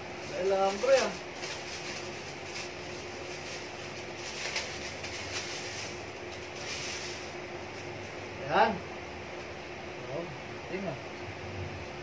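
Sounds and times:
steady room hum: 0.0 - 12.0
plastic packaging rustling: 0.2 - 8.2.

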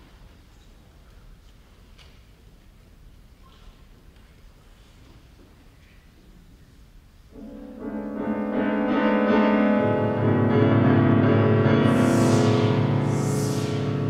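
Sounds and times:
piano: 7.3 - 14.0
breathy whooshing sweeps: 11.0 - 14.0
children's choir singing: 11.5 - 14.0.

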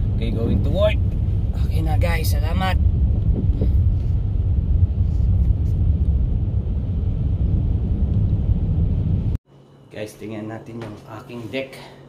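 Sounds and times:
car engine and road noise: 0.0 - 9.4.

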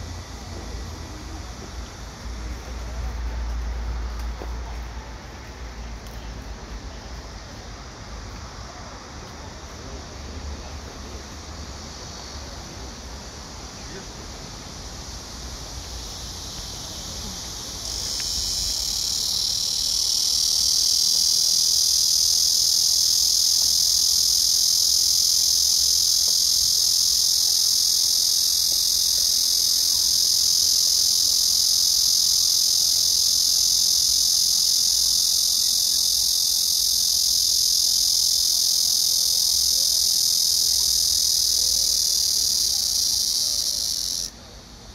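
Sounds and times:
cicada buzzing: 9.4 - 44.4.

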